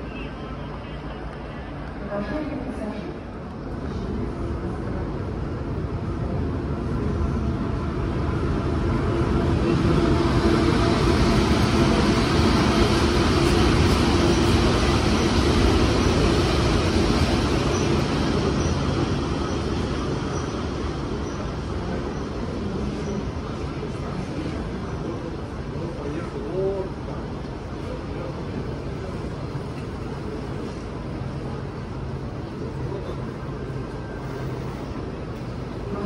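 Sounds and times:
passenger train rolling past: 0.0s - 36.0s.

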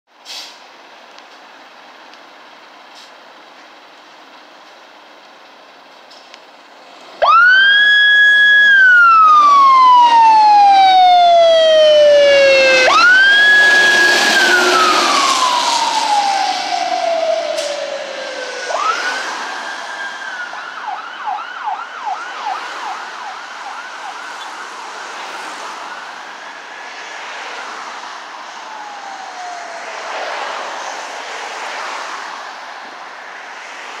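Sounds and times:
fire engine siren wailing: 7.2s - 34.0s.

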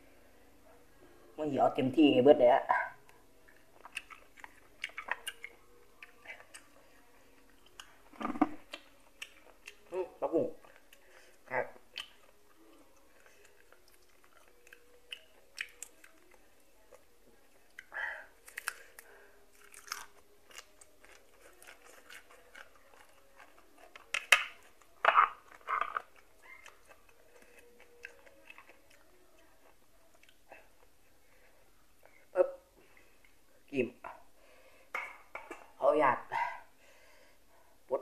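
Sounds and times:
chewing and crunching greens: 3.1s - 32.1s.

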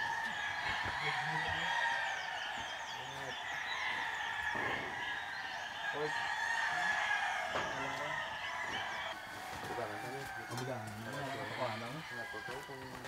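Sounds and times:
small chirping calls: 0.0s - 9.2s
insects chorus: 0.0s - 13.0s
rooster crowing: 0.0s - 13.0s.

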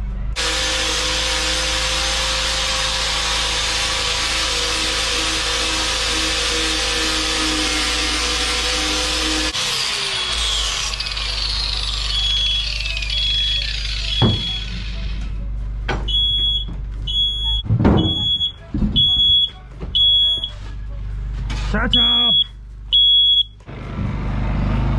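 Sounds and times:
angle grinder winding down: 0.4s - 15.2s
smoke alarm beeping: 12.0s - 15.0s, 16.1s - 20.6s, 21.9s - 23.6s
knocks: 17.6s - 19.2s.

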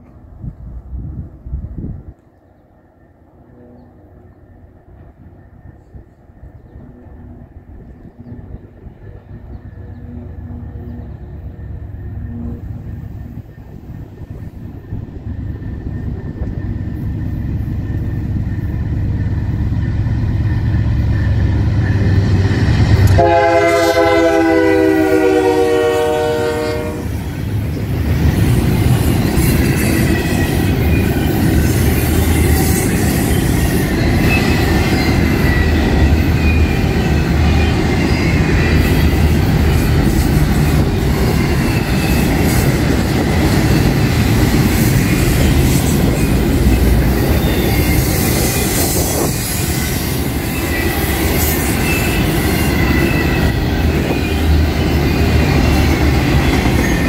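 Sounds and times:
diesel locomotive rumbling: 0.0s - 57.0s
train wheel rumble: 0.0s - 57.0s
train air horn blast: 23.0s - 27.2s.

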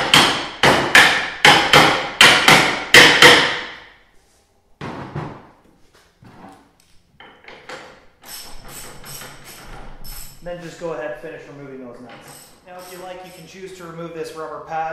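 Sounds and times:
hammer striking steel nuts: 0.0s - 3.8s.

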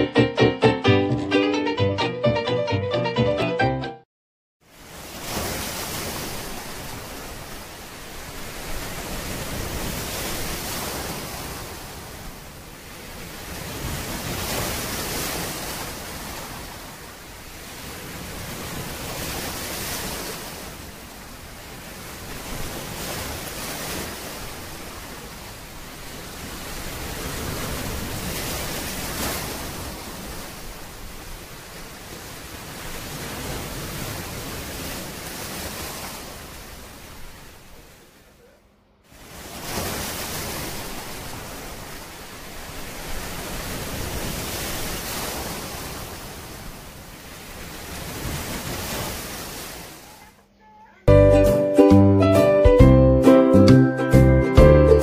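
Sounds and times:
ocean waves washing in: 4.6s - 50.3s.

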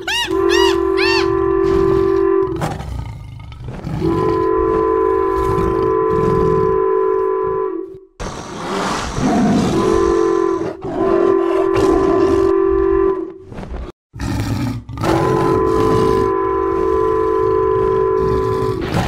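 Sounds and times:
train horn blast: 0.1s - 2.6s, 4.0s - 8.1s, 9.8s - 13.4s, 15.2s - 18.7s.

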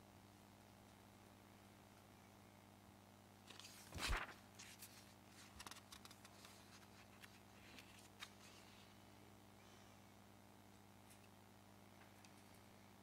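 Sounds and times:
paper rustling: 3.5s - 8.8s.

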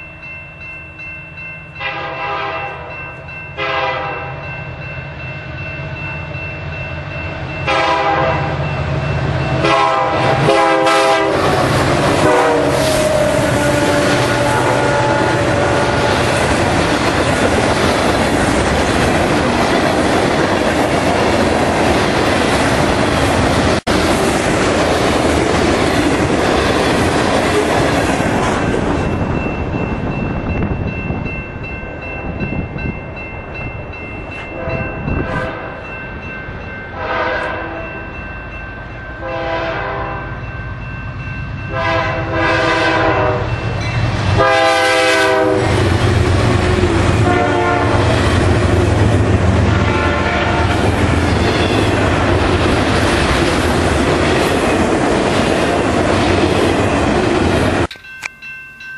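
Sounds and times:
deep locomotive engine rumble: 0.0s - 58.9s
locomotive air horn blasts: 1.8s - 3.0s, 3.6s - 4.4s, 7.7s - 8.6s, 9.6s - 16.4s, 34.5s - 35.8s, 36.9s - 37.9s, 39.2s - 40.3s, 41.7s - 43.5s, 44.4s - 45.8s, 47.2s - 48.1s, 49.7s - 50.8s.

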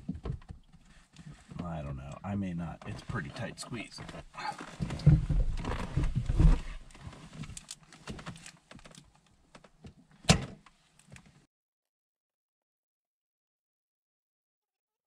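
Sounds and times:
dull knocks and rustling: 0.0s - 1.6s, 4.0s - 11.4s.

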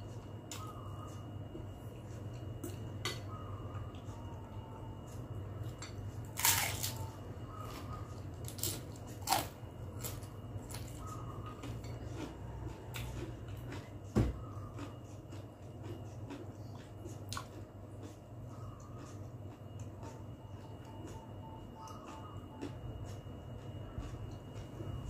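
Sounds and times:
steady low hum: 0.0s - 25.0s
chewing and mouth noises: 7.7s - 25.0s.

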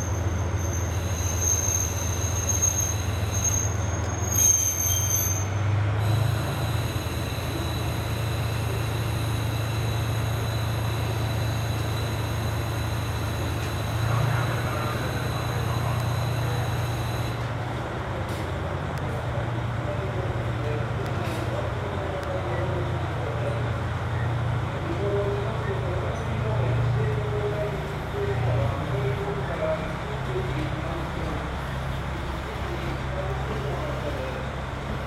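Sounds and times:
train brakes squealing: 0.0s - 17.5s
low diesel engine hum: 0.0s - 35.0s.

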